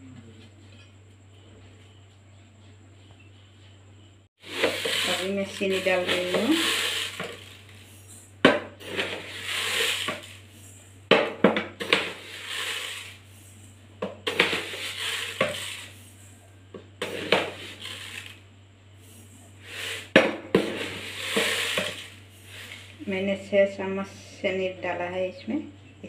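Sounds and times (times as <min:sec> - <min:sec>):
sugar grains hissing: 0:04.4 - 0:08.2, 0:08.8 - 0:10.9, 0:11.8 - 0:16.4, 0:17.0 - 0:18.4, 0:19.0 - 0:23.1.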